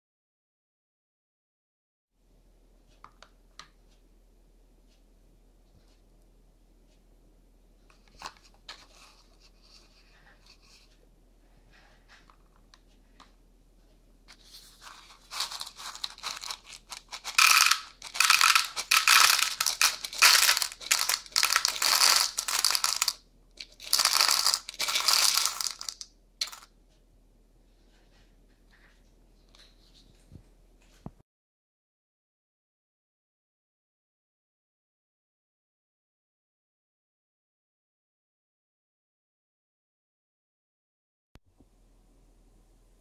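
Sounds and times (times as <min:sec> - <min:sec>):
metal pins clattering into plastic bowl: 0:14.8 - 0:26.7.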